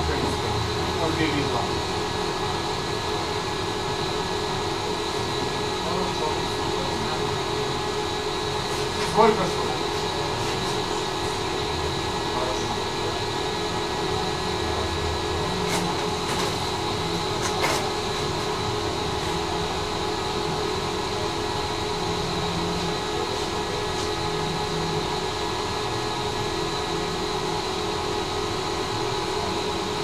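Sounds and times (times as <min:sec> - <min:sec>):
tram rolling hum with whine: 0:00.0 - 0:30.0.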